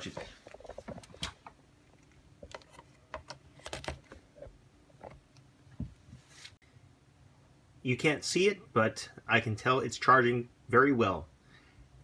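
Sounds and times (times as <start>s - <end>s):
plastic plugs clicking and knocking: 0.8s - 5.5s.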